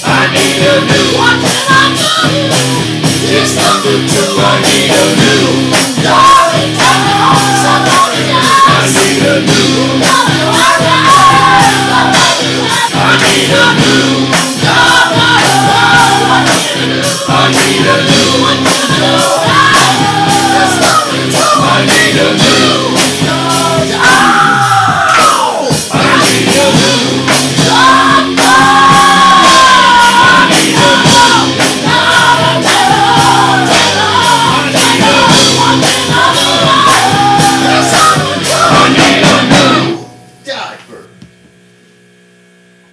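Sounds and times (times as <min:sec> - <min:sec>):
man singing and shouting: 0:00.0 - 0:11.5
hard rock song: 0:00.0 - 0:40.6
drum hits: 0:00.0 - 0:40.7.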